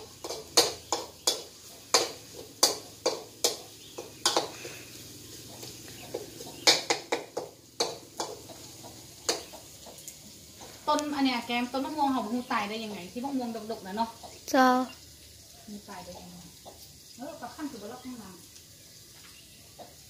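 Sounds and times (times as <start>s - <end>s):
metal spatula clacking on wok: 0.0s - 4.7s, 6.1s - 9.6s.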